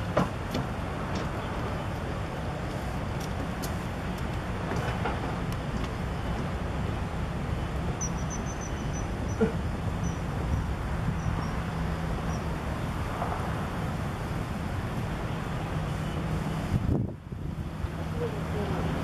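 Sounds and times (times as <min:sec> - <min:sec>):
low outdoor rumble: 0:00.0 - 0:19.0
faint high chirps: 0:08.0 - 0:09.4.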